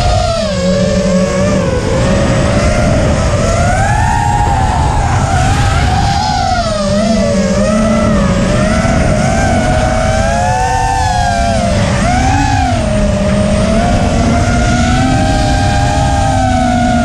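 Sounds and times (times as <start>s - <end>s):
drone propellers whining: 0.0s - 17.0s
low rumble: 0.0s - 17.0s.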